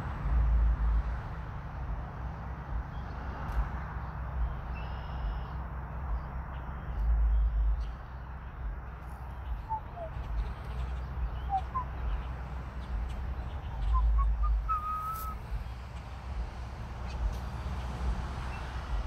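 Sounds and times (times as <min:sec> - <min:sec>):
wind rumbling on microphone: 0:00.0 - 0:19.0
whistled notes: 0:09.6 - 0:10.3, 0:11.4 - 0:12.2, 0:13.8 - 0:15.4.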